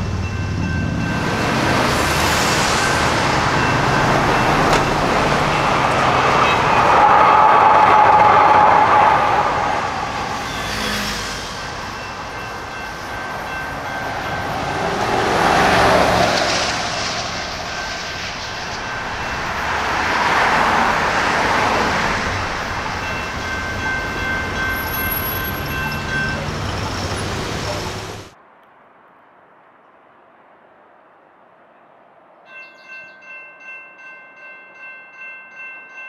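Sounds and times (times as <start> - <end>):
light rail train passing: 0.0 - 28.4.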